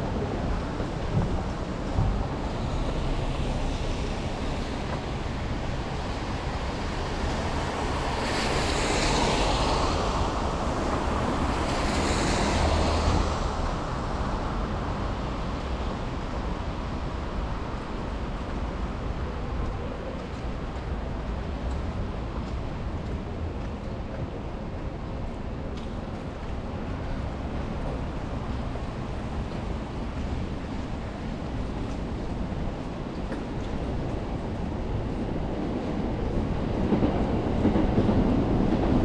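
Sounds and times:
tyres hissing on wet road: 2.4 - 18.3.

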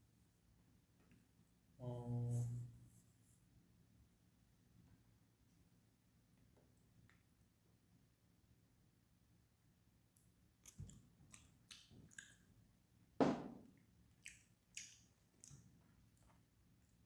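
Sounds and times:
chewing: 10.6 - 12.6, 14.1 - 17.0.

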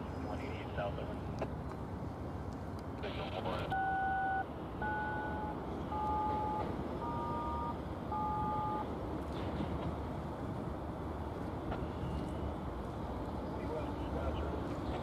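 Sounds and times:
touch-tone beeps over radio: 3.0 - 8.8.

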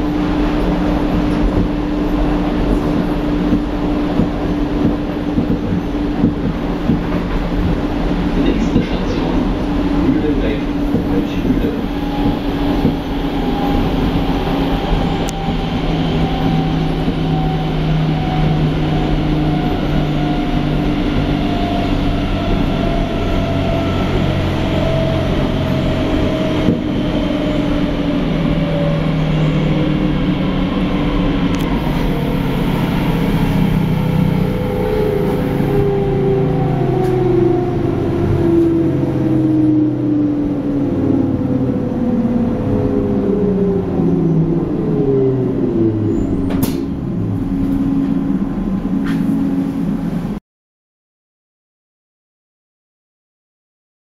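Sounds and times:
electric train drone: 0.0 - 50.4
rail noise: 0.0 - 50.4
traction motor whine: 8.5 - 50.1.

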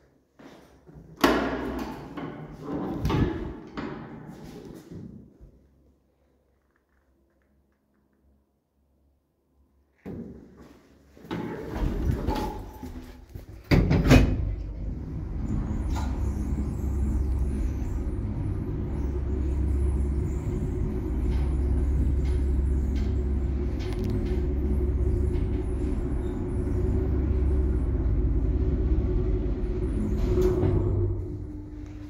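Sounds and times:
lift rumbling: 1.7 - 4.8, 11.2 - 32.0.

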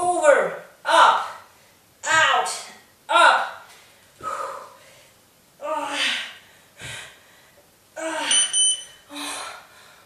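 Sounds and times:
woman grunting with exertion: 8.0 - 8.5
short electronic beeps: 8.3 - 9.0.

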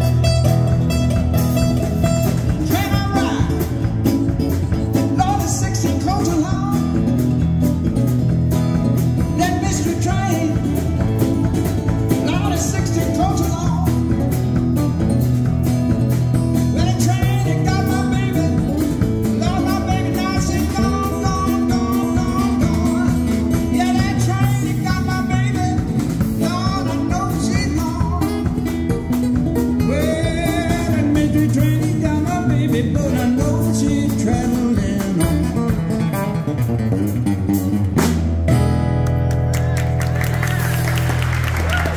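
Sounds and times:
live blues band playing: 0.0 - 41.9
person singing: 2.5 - 4.0, 9.2 - 11.3, 16.7 - 28.7, 29.8 - 35.7.

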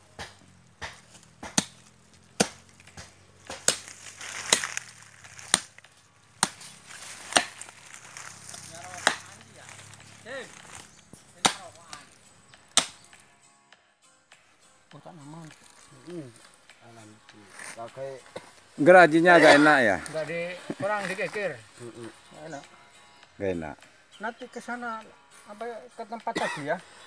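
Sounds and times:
machete chopping roots: 0.1 - 13.2.

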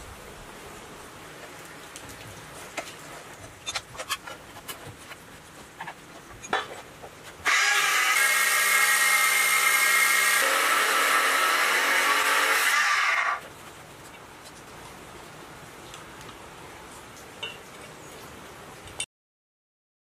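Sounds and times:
cut-off saw grinding steel pipe: 7.4 - 13.4.

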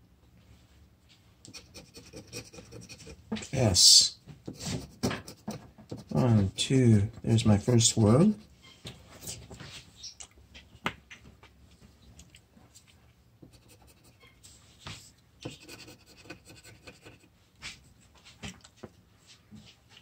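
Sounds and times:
scratching on paper ticket: 1.5 - 3.2, 15.5 - 17.3.

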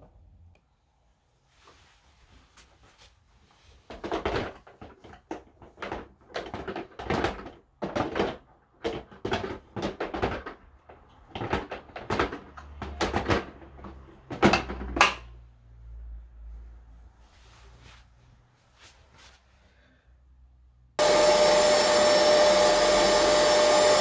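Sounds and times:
hollow plastic knocks and rattles: 3.8 - 15.3.

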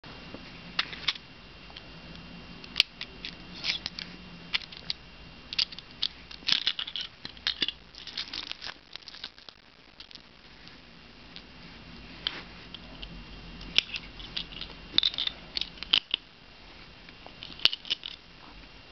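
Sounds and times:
plastic toy bricks clicking: 17.4 - 18.2.

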